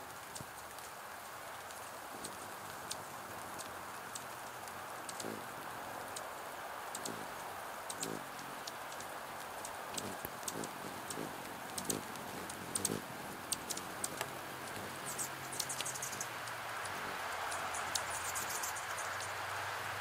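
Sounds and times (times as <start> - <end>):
raindrops ticking on plastic: 0.0 - 18.2
steady rain: 0.0 - 20.0
low wing hum: 1.6 - 6.2, 6.9 - 9.0, 9.7 - 20.0
hummingbird high chips: 5.0 - 6.2, 6.9 - 9.0, 9.6 - 19.4.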